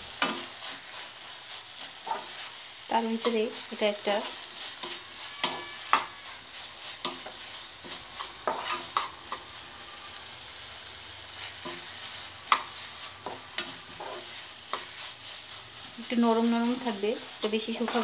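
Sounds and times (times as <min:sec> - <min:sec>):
wooden spatula scraping a pan: 0:00.0 - 0:10.5, 0:11.2 - 0:18.0
frying sizzle: 0:00.0 - 0:18.0.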